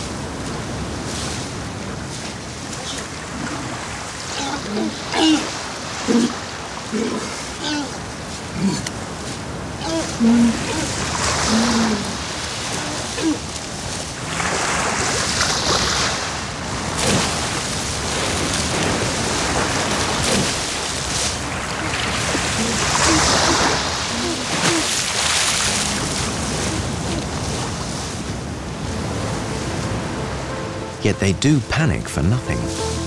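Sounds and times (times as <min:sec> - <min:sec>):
surf: 0:00.0 - 0:33.0
walruses splashing in water: 0:02.0 - 0:28.3.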